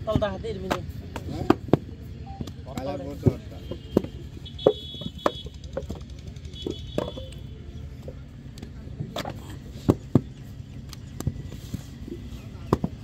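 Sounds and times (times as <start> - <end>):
wooden mould knocking on sandy ground: 12.6 - 13.0.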